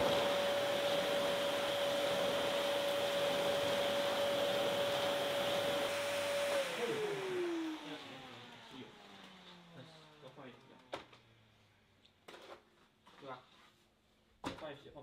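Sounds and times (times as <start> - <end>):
vacuum motor spinning down: 0.0 - 11.4
vacuum cleaner motor whine: 0.0 - 11.5.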